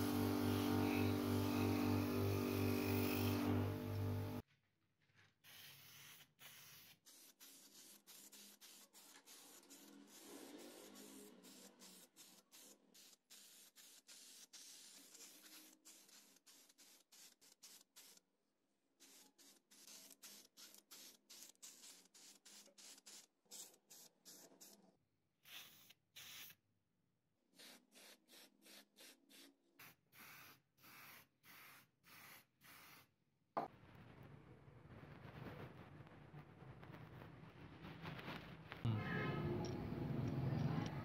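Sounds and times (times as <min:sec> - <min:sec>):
spray paint can hissing: 0:05.4 - 0:18.2, 0:19.0 - 0:24.8, 0:25.4 - 0:26.6, 0:27.6 - 0:33.1.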